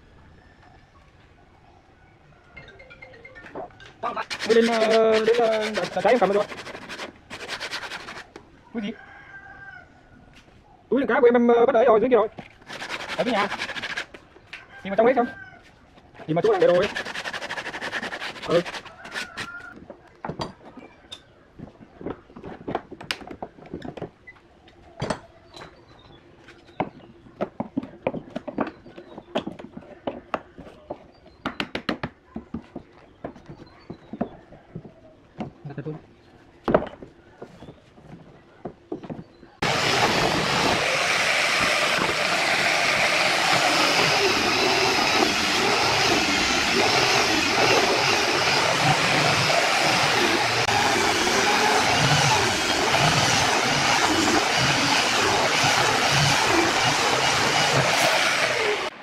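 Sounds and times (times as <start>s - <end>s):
hand tool working wood: 4.0s - 8.4s, 12.6s - 14.2s, 16.2s - 19.6s, 39.6s - 58.9s
angle grinder sanding wood: 4.1s - 8.3s, 12.6s - 14.2s, 16.3s - 19.5s, 39.6s - 58.9s.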